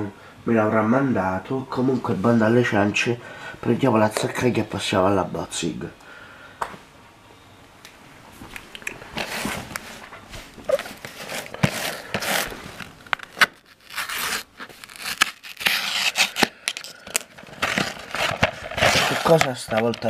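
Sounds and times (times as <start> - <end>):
knife scraping cardboard: 9.2 - 10.0, 10.6 - 16.5, 17.6 - 19.6.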